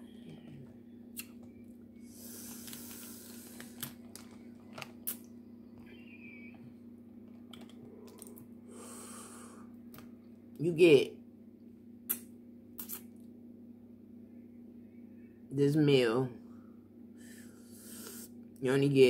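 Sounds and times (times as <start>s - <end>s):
steady low hum: 0.0s - 19.0s
plastic bag rustling: 2.2s - 5.1s.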